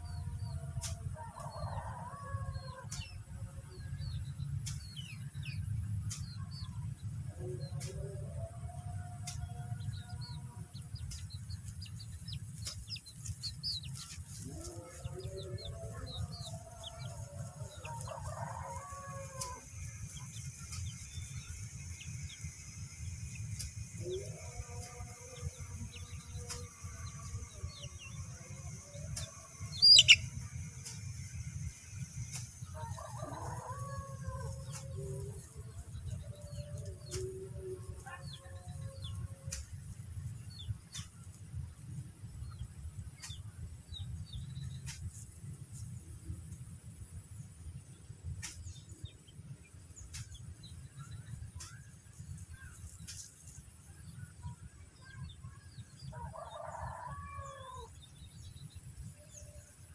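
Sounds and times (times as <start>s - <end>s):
steady low rumble: 2.4s - 56.1s
small birds chirping: 10.7s - 18.2s, 18.8s - 32.6s
chickens calling: 28.8s - 31.0s
loud sharp bird chirp: 29.8s - 30.3s.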